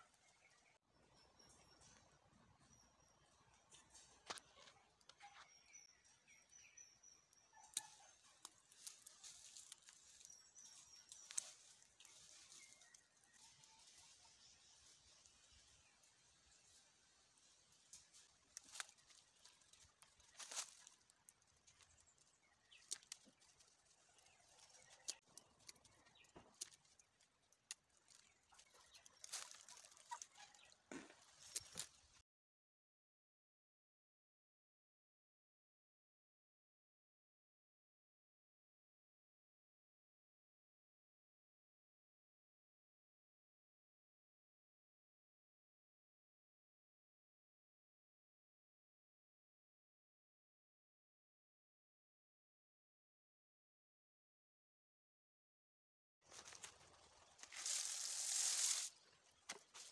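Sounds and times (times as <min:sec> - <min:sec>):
rustling of leaves and twigs: 0:07.8 - 0:32.2, 0:56.2 - 0:59.9.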